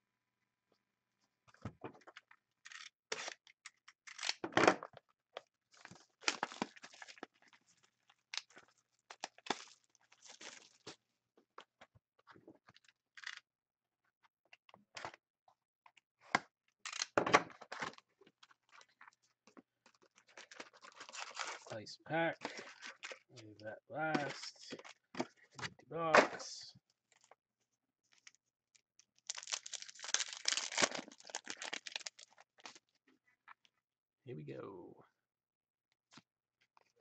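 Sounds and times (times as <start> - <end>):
shrink-wrap tearing: 5.8 - 7.4, 20.0 - 21.7, 29.0 - 32.8.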